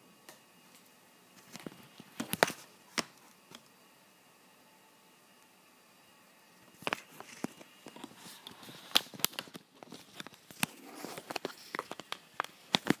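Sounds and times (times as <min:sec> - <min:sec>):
recording device handling noise: 0:00.2 - 0:03.8, 0:06.5 - 0:13.0.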